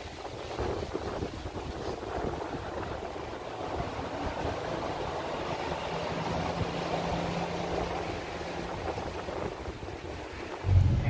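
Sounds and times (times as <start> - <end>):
gusty wind buffeting microphone: 0.0 - 11.0
faint steady hum: 10.6 - 11.0.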